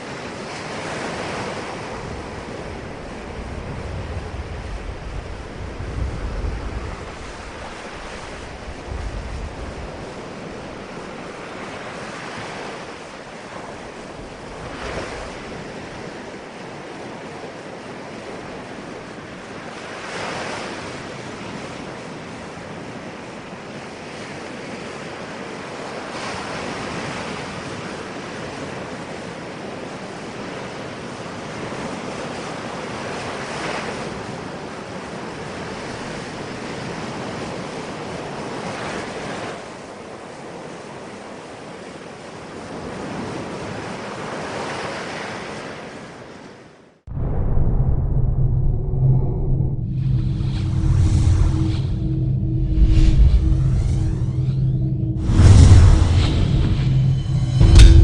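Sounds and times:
waves breaking on shore: 0:00.0 - 0:46.9
deep rumble: 0:47.1 - 0:58.0.

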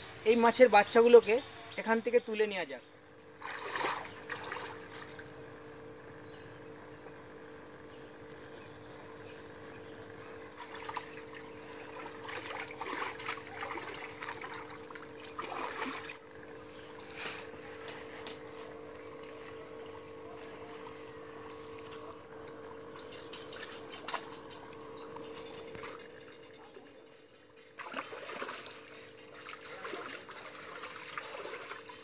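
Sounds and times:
steady low hum: 0:00.0 - 0:32.0
water splashing and trickling: 0:03.4 - 0:05.5, 0:10.2 - 0:16.4, 0:27.2 - 0:32.0.

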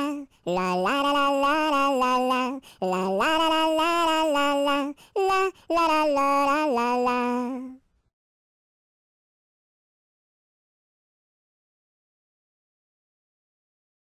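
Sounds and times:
high voice singing: 0:00.0 - 0:07.8.

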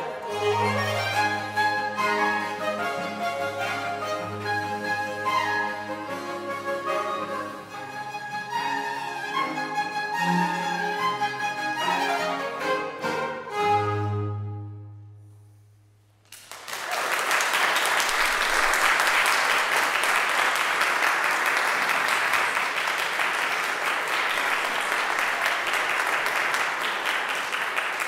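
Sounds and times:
audience applauding: 0:16.3 - 0:28.0.

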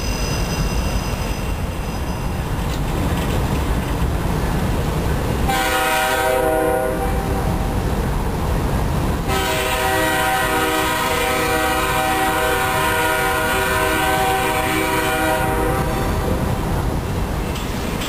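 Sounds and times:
train rumbling: 0:00.0 - 0:18.0
locomotive air horn chord: 0:05.5 - 0:07.4, 0:09.3 - 0:16.3.

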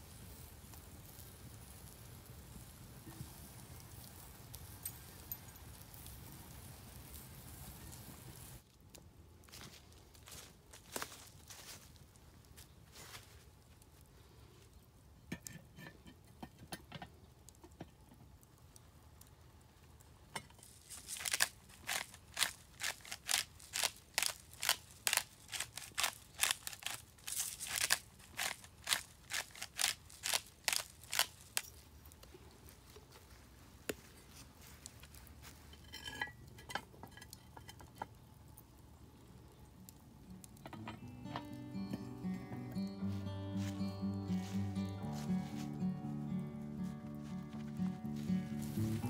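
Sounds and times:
seasoning shaker rattling: 0:20.6 - 0:31.7.

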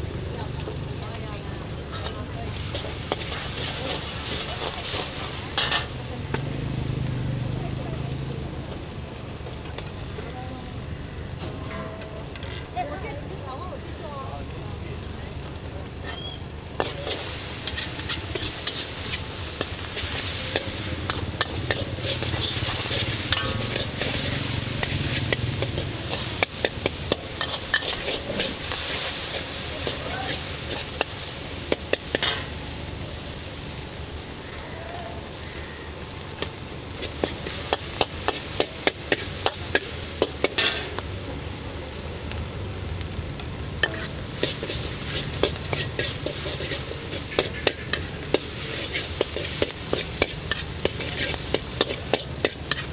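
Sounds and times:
noodles sizzling in a wok: 0:00.0 - 0:52.9
metal spatula scraping a wok: 0:01.8 - 0:06.1, 0:16.1 - 0:32.6, 0:36.4 - 0:41.0, 0:43.8 - 0:52.9.

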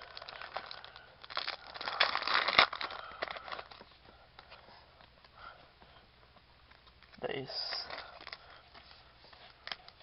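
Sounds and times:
foil wrapper crinkling: 0:00.0 - 0:03.8, 0:06.9 - 0:08.9.

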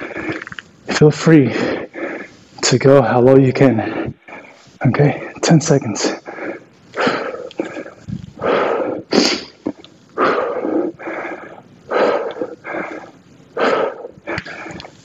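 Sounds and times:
man breathing hard: 0:00.0 - 0:00.5, 0:01.5 - 0:02.6, 0:06.0 - 0:15.0.

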